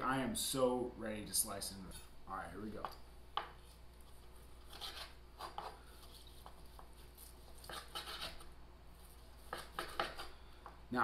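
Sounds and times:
knife scraping through steak: 4.4 - 10.4.

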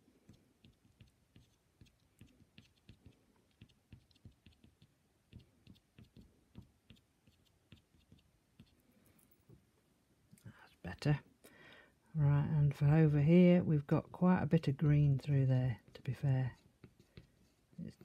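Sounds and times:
pastel tapping and scratching on paper: 0.0 - 8.8, 15.7 - 18.0.

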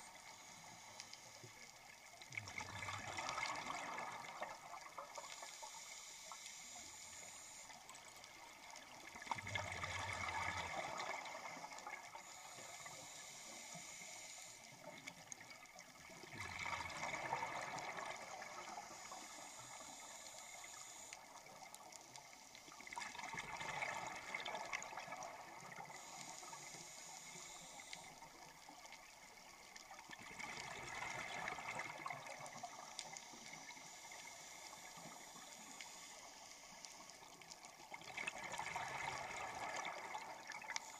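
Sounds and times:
regulator inhaling hiss: 0.0 - 1.9, 5.2 - 8.9, 10.2 - 15.3, 17.8 - 22.9, 25.3 - 28.8, 32.4 - 37.6
exhaled bubbles underwater: 2.3 - 5.2, 8.9 - 12.0, 16.1 - 18.8, 22.8 - 26.1, 30.0 - 33.6, 37.8 - 40.9.

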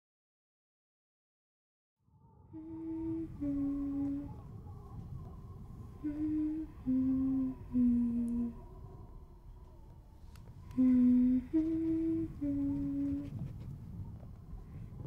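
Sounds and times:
low steady rumble: 2.2 - 15.0
person humming a tune: 2.5 - 8.8, 10.6 - 13.5.

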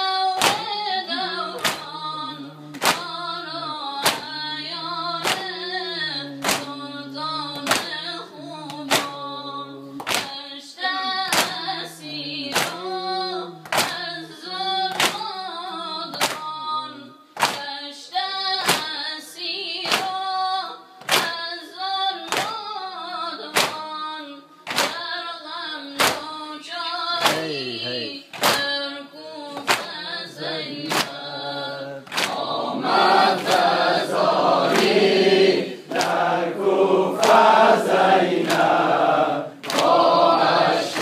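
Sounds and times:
man singing a lament: 0.0 - 10.0, 27.1 - 28.9, 29.5 - 34.7
men slapping chests in unison: 0.0 - 16.7, 17.4 - 17.8, 18.6 - 19.0, 19.7 - 20.4, 21.0 - 21.5, 22.1 - 25.2, 25.8 - 26.4, 27.1 - 27.6, 28.3 - 41.0.

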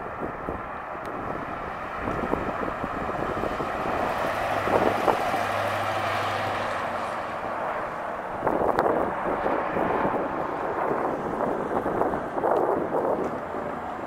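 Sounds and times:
car engine driving past: 1.4 - 12.1.

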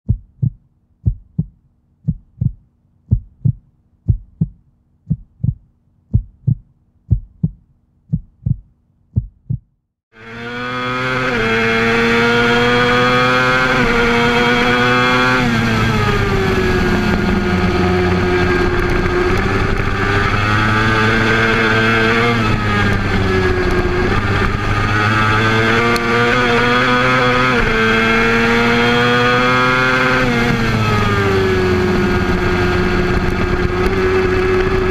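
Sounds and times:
low thumps: 0.1 - 9.8
motorcycle engine revving: 10.1 - 34.9.

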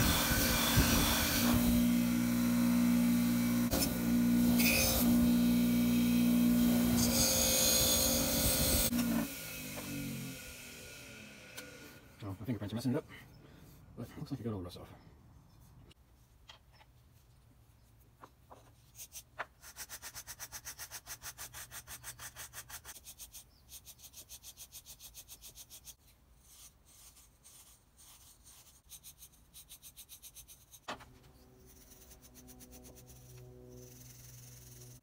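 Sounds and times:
wire brush scrubbing metal: 19.0 - 35.0.

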